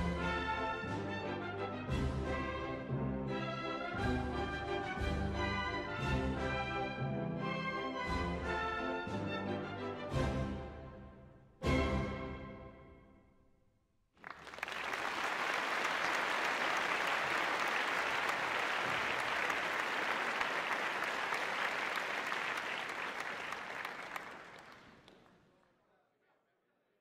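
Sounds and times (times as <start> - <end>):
audience applause: 14.2 - 25.4.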